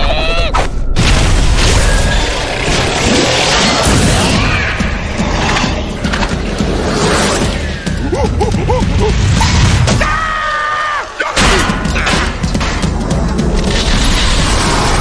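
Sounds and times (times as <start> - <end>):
busy cartoon music: 3.1 - 10.2, 11.2 - 14.3.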